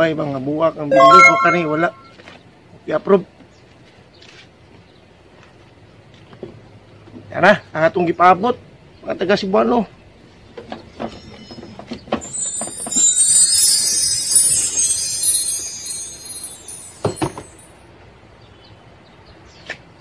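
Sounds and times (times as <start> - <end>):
bright shimmering high sound: 0.9 - 2.2, 12.2 - 17.7.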